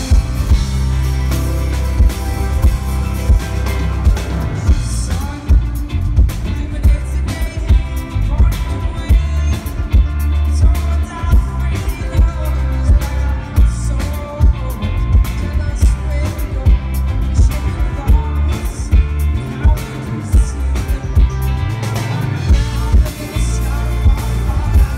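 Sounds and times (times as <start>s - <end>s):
live rock band playing: 0.0s - 24.9s.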